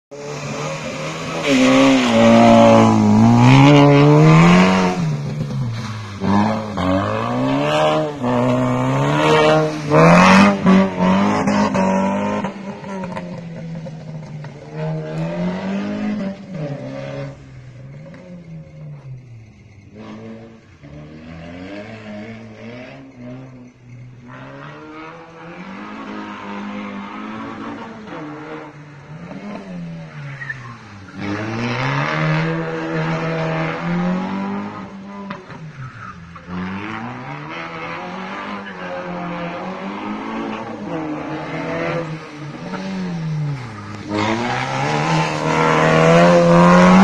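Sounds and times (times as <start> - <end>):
car engine revving: 0.1 - 47.0
car engine revving hard: 6.2 - 14.2, 31.2 - 35.5, 36.5 - 47.0.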